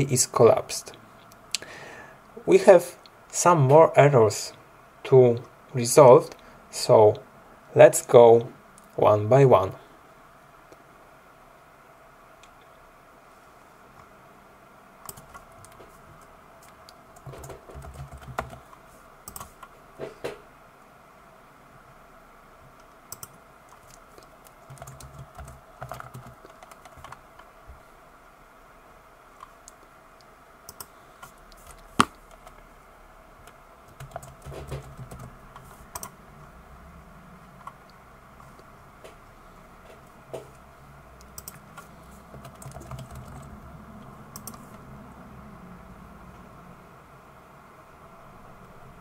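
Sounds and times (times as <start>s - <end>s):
typing on computer keyboard: 15.0s - 15.8s, 16.6s - 19.7s, 22.8s - 27.5s, 33.9s - 36.1s, 41.3s - 43.5s, 44.3s - 44.6s.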